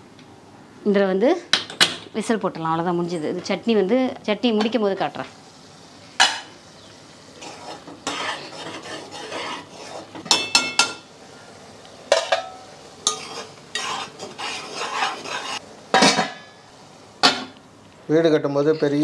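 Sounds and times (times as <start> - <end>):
sauce frying: 3.6 - 18.1
ladle stirring and scraping pot: 7.4 - 11.1, 12.1 - 16.5.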